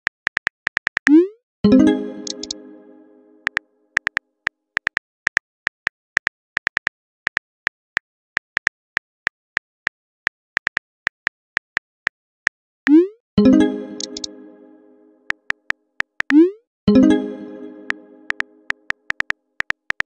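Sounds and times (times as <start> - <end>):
phone keyboard clicks: 2.2 - 2.6, 14.0 - 14.3, 18.3 - 20.0.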